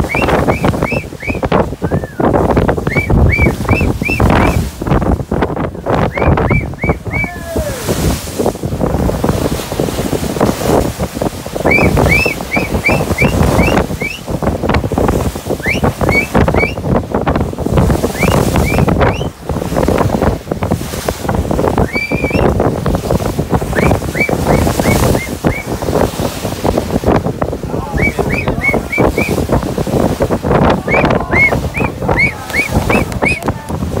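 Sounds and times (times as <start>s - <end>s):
bow wave rushing along hull: 0.0s - 34.0s
wind on microphone: 0.0s - 34.0s
high whistled chirps: 11.7s - 14.2s.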